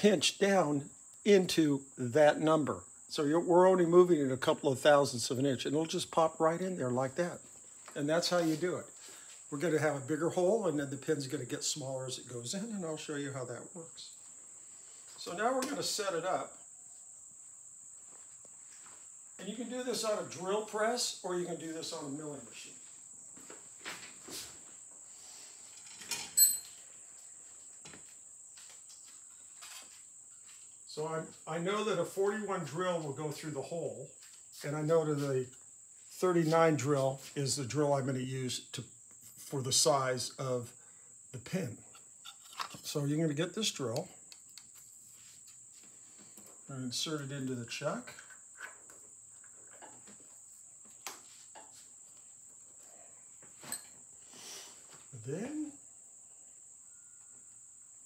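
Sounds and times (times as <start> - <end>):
metallic clink: 26.2 - 26.8, 53.6 - 54.0.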